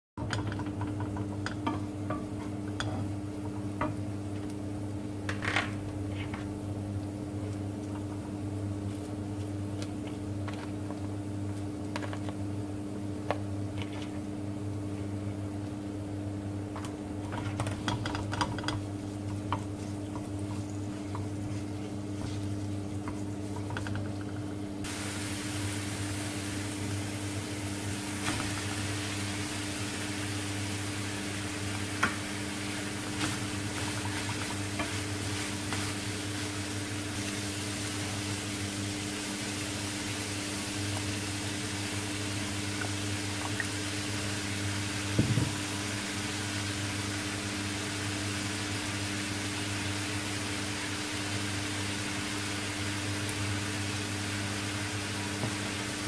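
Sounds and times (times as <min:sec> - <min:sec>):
steady low hum: 0:00.2 - 0:48.8
meat sizzling in oil: 0:18.0 - 0:56.0.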